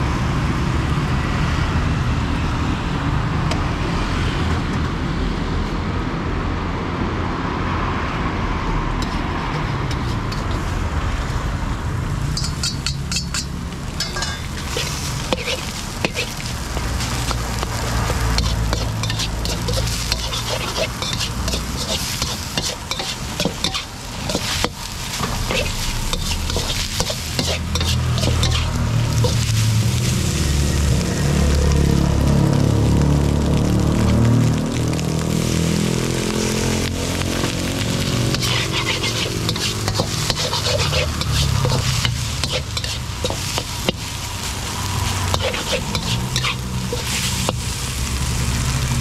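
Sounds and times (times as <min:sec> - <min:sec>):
metal ladle scraping and clanking: 0:09.0 - 0:10.7, 0:12.4 - 0:29.6, 0:38.3 - 0:44.0, 0:45.3 - 0:47.6
rice sizzling in a wok: 0:09.0 - 0:49.0.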